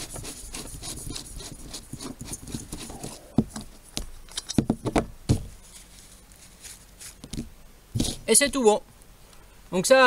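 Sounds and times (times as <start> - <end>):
paper rustling: 5.5 - 8.2.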